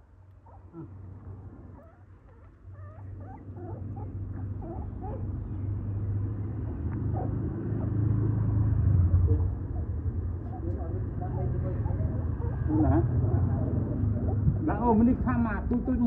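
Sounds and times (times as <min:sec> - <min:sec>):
puppies whimpering: 0:00.4 - 0:01.0, 0:01.8 - 0:08.5, 0:11.3 - 0:14.4
low rumble: 0:00.7 - 0:16.0.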